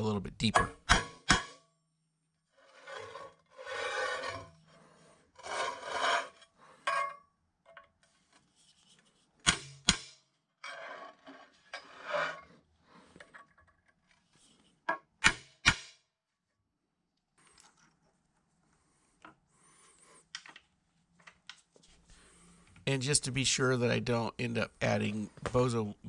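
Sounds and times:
hammer striking steel punch: 0:00.5 - 0:01.6, 0:09.4 - 0:10.2, 0:15.2 - 0:16.0
metal scraping on metal: 0:02.5 - 0:07.2, 0:10.6 - 0:12.7.

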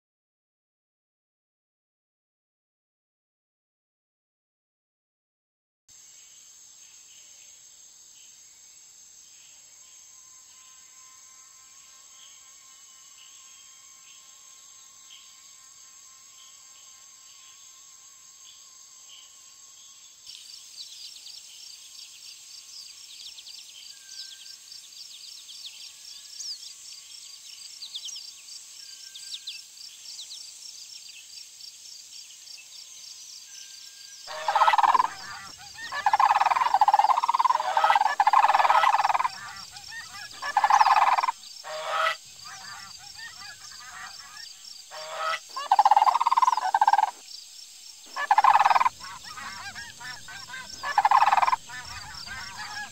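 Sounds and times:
insects trilling: 0:06.0 - 0:52.9
faint bird chirps: 0:32.5 - 0:47.2, 0:48.0 - 0:52.9
cranes calling loudly: 0:34.3 - 0:47.2, 0:48.1 - 0:52.9.

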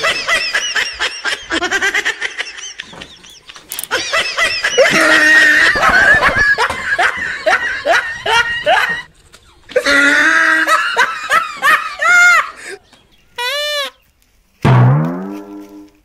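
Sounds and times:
person laughing: 0:00.0 - 0:09.1, 0:09.7 - 0:12.8, 0:13.4 - 0:14.0.

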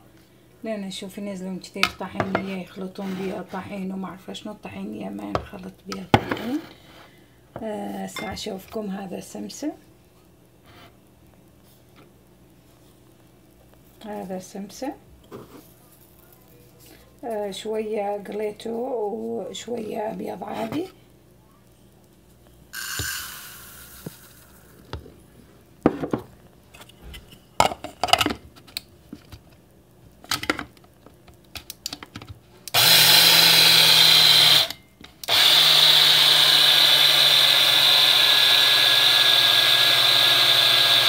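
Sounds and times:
electric coffee grinder grinding seeds: 0:22.8 - 0:25.0, 0:32.7 - 0:41.0.

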